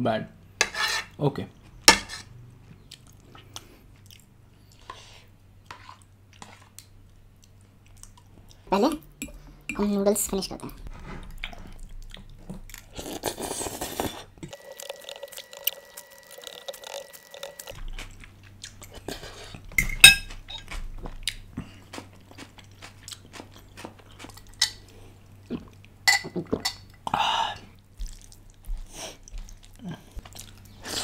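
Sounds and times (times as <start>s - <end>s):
chewing with wet mouth sounds: 2.8s - 4.8s, 6.0s - 8.7s, 11.2s - 27.0s, 27.7s - 31.0s
slurping noodles: 13.0s - 17.8s.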